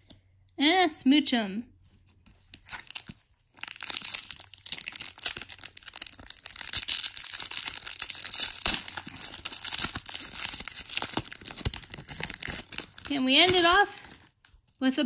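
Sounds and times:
foil wrapper tearing and crinkling: 2.6s - 14.5s.

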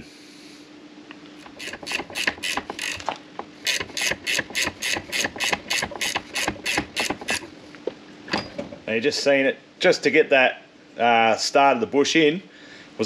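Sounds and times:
socket ratchet clicking: 1.5s - 7.5s.

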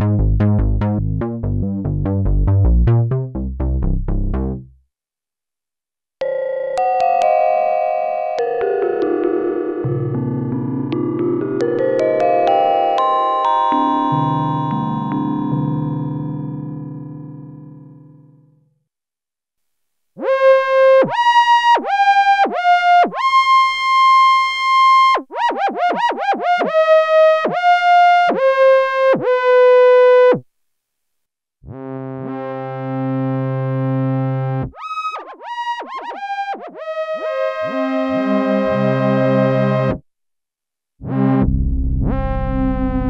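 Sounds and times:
synthesizer chords: 0.0s - 4.8s, 8.3s - 18.5s
synthesizer lead melody: 6.2s - 18.0s, 35.3s - 40.0s.

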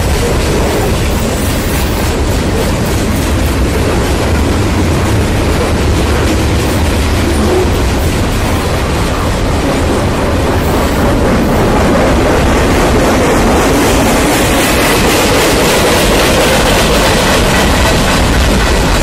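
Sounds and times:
freight train wheels rumbling: 0.0s - 19.0s.

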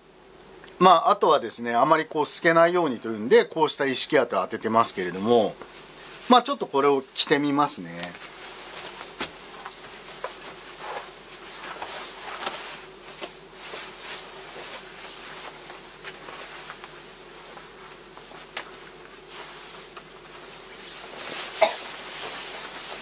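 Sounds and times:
fabric rustling: 7.9s - 23.0s.

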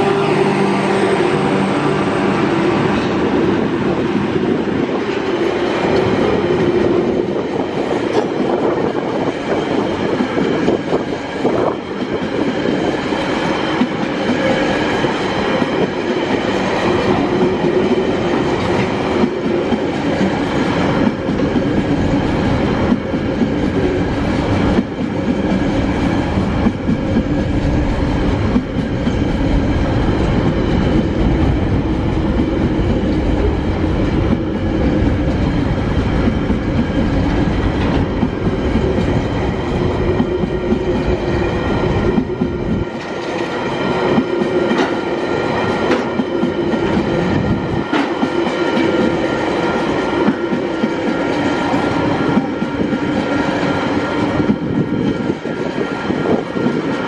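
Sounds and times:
diesel locomotive engine: 0.0s - 57.0s
train wheels clattering over rails: 2.1s - 57.0s.

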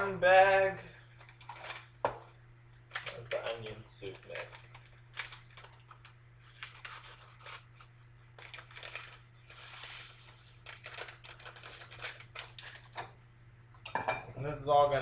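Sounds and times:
paper packet rustling: 2.9s - 13.0s.

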